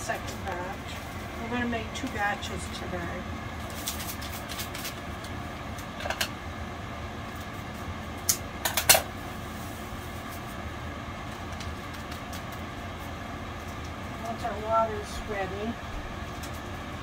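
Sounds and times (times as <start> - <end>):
steady background hum: 0.0 - 17.0
packet crinkling: 3.6 - 5.9, 11.2 - 12.8.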